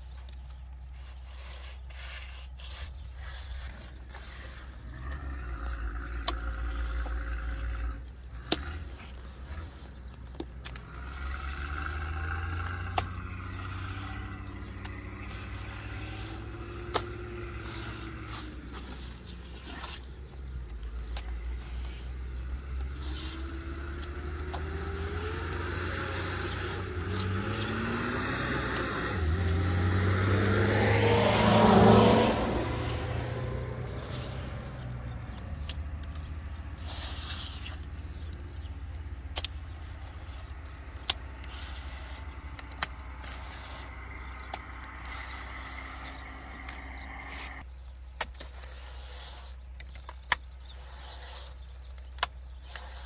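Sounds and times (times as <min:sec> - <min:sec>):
vehicle engine rising in pitch: 0:22.8 - 0:36.3.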